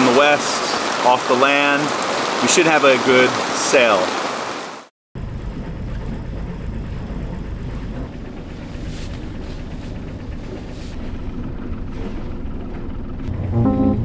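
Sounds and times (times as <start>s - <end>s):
diesel engine idling: 5.2s - 14.0s.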